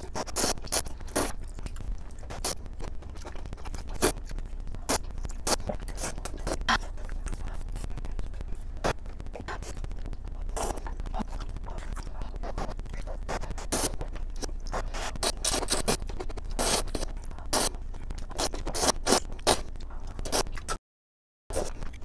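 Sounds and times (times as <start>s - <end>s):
slurping noodles: 14.7s - 19.6s.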